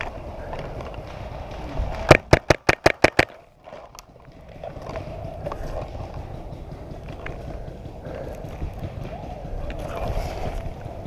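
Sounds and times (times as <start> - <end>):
paintball marker firing: 0.9 - 3.4.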